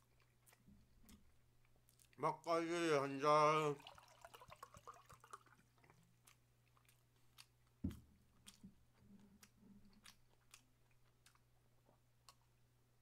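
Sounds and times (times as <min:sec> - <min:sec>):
mouth and swallowing sounds: 0:04.9 - 0:12.6.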